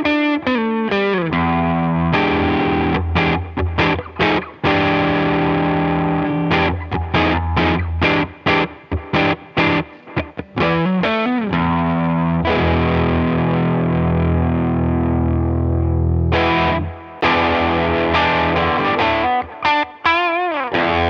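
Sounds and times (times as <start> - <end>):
distorted electric guitar: 0.0 - 21.0.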